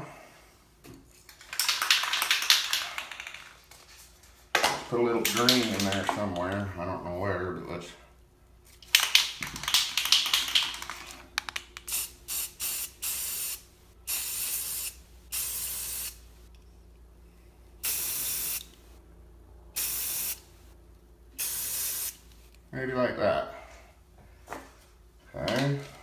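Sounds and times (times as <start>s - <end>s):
spray can rattle: 1.3s - 3.8s, 5.2s - 6.6s, 8.8s - 16.2s
spray paint can hissing: 11.8s - 16.2s, 17.8s - 18.7s, 19.8s - 20.4s, 21.4s - 22.2s.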